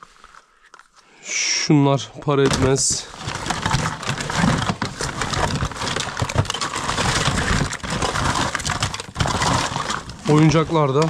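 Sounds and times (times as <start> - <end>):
rustling through belongings: 0.0 - 1.1, 2.0 - 11.0
toys knocking and clattering: 2.4 - 11.0.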